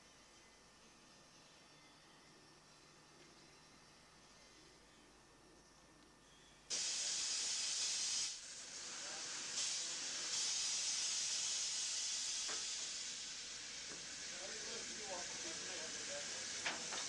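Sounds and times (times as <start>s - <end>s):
steam hissing loudly: 6.7s - 17.0s.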